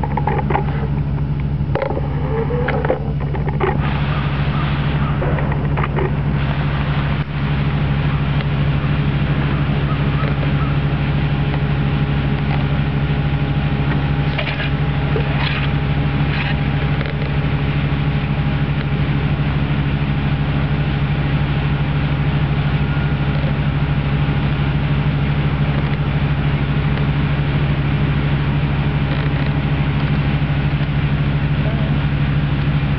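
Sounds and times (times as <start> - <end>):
low motor hum: 0.0 - 32.9
faint clicks: 25.7 - 26.0.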